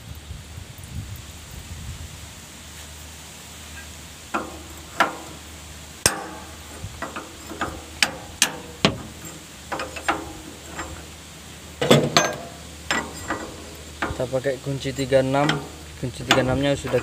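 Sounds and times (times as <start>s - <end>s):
hammer striking steel: 4.4s - 14.4s, 15.0s - 17.0s.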